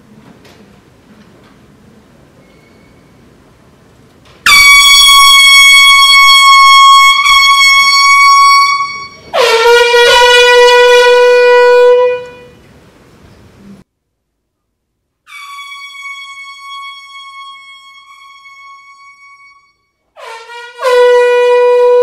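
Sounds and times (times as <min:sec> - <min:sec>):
air horn blasts: 0:04.4 - 0:12.6, 0:15.3 - 0:22.0.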